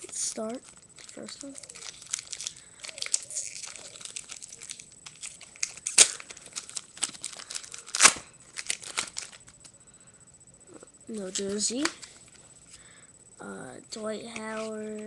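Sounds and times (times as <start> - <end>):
foil wrapper ripping: 0.0 - 9.6
foil wrapper crinkling: 0.0 - 9.7.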